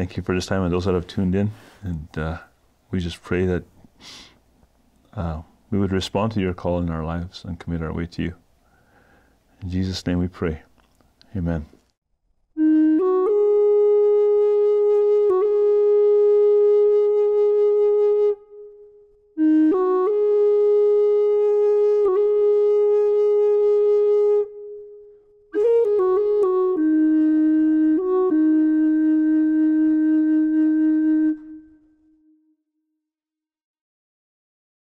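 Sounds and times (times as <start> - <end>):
reedy wind instrument playing: 12.6 - 32.6.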